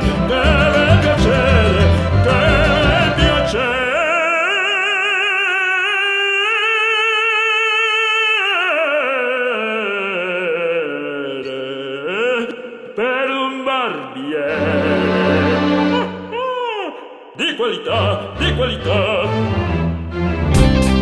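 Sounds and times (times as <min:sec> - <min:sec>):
musical accompaniment: 0:00.0 - 0:04.1, 0:14.5 - 0:16.4, 0:18.0 - 0:21.0.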